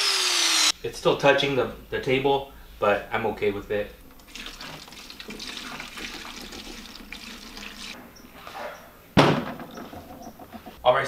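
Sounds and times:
fuel pouring through funnel: 0:04.2 - 0:08.0.

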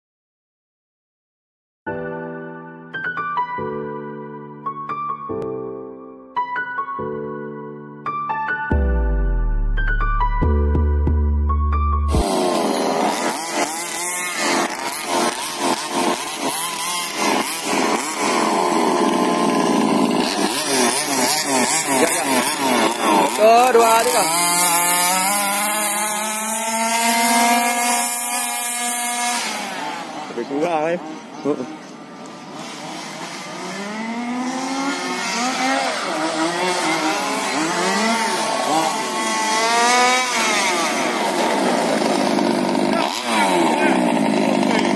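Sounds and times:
piano music: 0:01.9 - 0:13.1
small petrol engines revving: 0:12.1 - 0:44.9.

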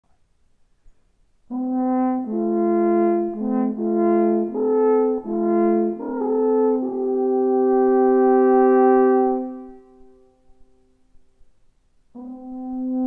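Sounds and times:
alphorn playing: 0:01.5 - 0:10.3, 0:12.1 - 0:13.0.

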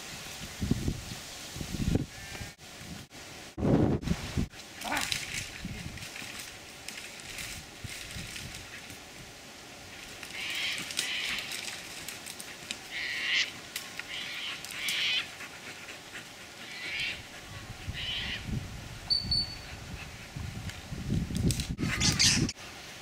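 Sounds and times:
rustling through brush and grass: 0:00.0 - 0:19.1, 0:19.7 - 0:23.0
harsh animal calls: 0:12.9 - 0:15.3.

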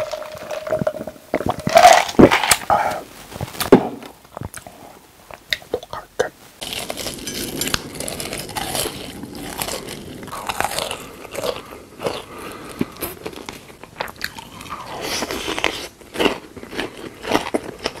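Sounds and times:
chewing: 0:06.6 - 0:18.0.

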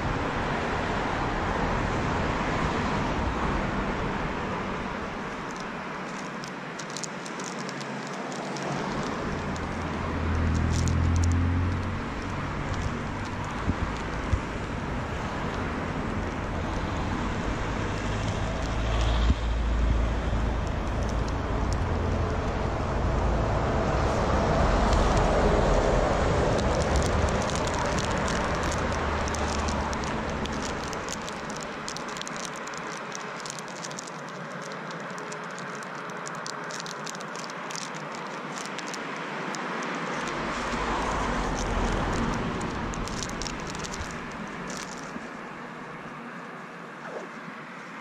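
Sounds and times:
crackling rustles: 0:00.0 - 0:48.0
street noise: 0:00.0 - 0:48.0
wind rumbling on microphone: 0:08.2 - 0:39.0, 0:40.0 - 0:45.6.

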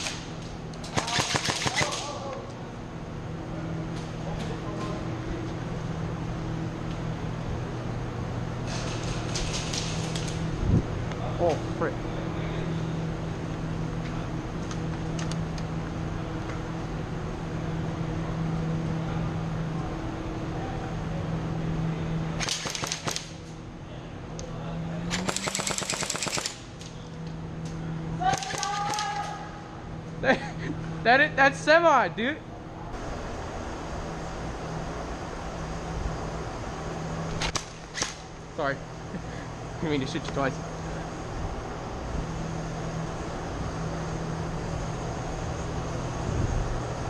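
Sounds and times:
steady low hum: 0:00.0 - 0:47.0
airsoft rifle firing bursts: 0:00.9 - 0:02.0, 0:22.4 - 0:23.3, 0:25.2 - 0:26.6.

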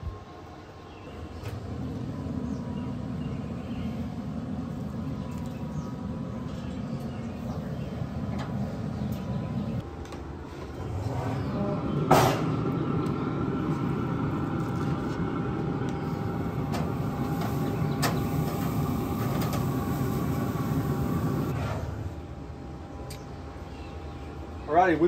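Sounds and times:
grill fan running: 0:00.0 - 0:25.0.

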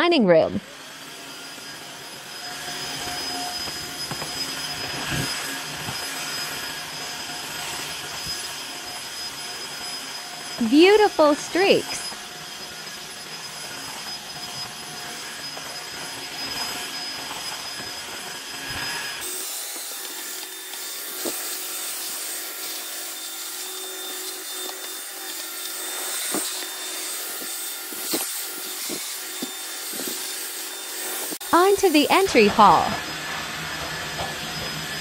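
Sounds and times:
floor washer motor hum: 0:00.9 - 0:35.0
roller rubbing on tile: 0:25.8 - 0:31.4.

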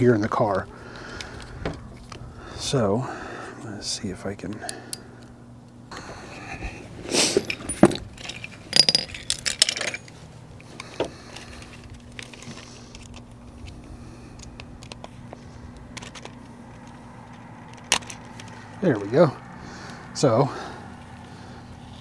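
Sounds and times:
seatbelt hardware clinking and rattling: 0:07.2 - 0:13.8, 0:15.8 - 0:18.6.

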